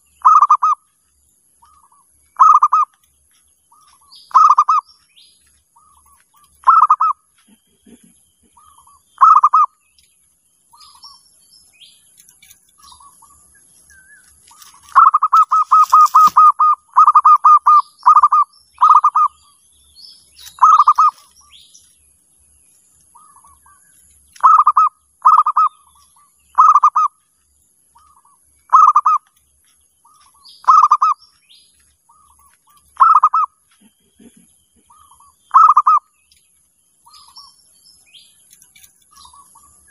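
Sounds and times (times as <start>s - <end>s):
dove cooing: 0.0s - 0.8s, 1.6s - 2.9s, 3.8s - 4.9s, 5.8s - 9.7s, 14.5s - 19.4s, 20.5s - 21.3s, 24.4s - 25.9s, 26.5s - 27.2s, 28.0s - 29.2s, 30.1s - 31.2s, 32.1s - 36.1s
small birds chirping: 0.0s - 39.9s.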